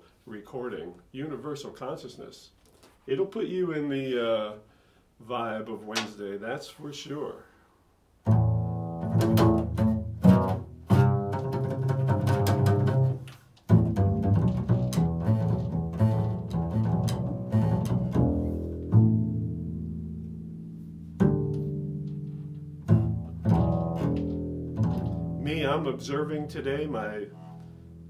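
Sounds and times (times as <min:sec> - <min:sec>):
double bass plucked: 0:08.2 - 0:28.0.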